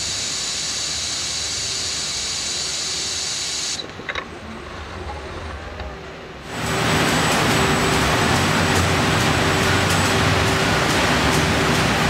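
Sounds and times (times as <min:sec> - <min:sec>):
pneumatic gripper air hiss: 0:00.0 - 0:03.9.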